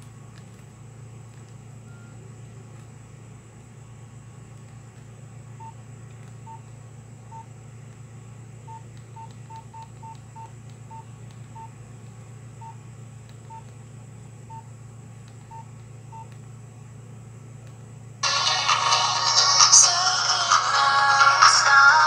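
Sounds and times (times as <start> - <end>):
low steady hum: 0.0 - 22.0
phone keypad beeps: 6.4 - 6.7, 8.7 - 11.7, 13.4 - 13.7, 14.5 - 14.7, 15.4 - 16.4.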